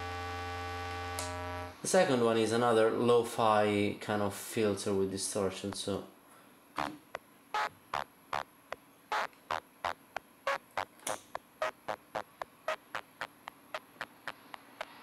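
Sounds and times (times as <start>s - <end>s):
distorted toy keyboard pulses: 0.0s - 1.7s, 7.6s - 8.5s, 9.1s - 10.9s, 11.6s - 15.0s.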